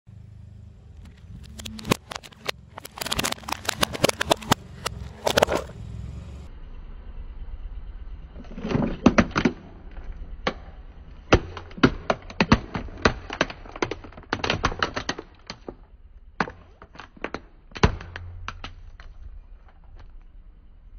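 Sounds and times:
car engine hum: 0.1 - 11.8
plastic toy cracking under tyre: 1.0 - 5.7, 8.4 - 20.4.

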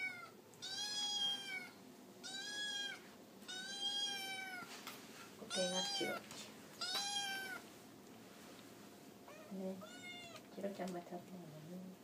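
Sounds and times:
kitten meowing: 0.0 - 4.7, 5.5 - 6.2, 6.8 - 7.6, 9.3 - 10.4.

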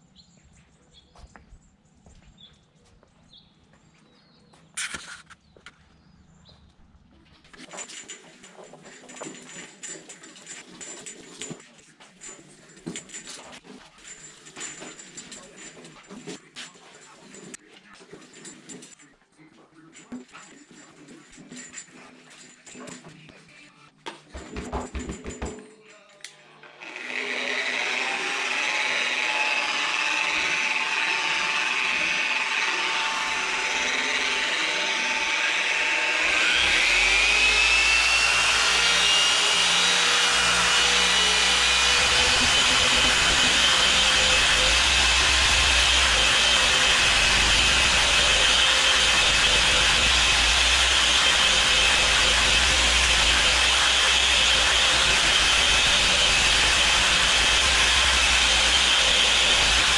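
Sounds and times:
orbital polisher motor whine: 26.7 - 59.9.

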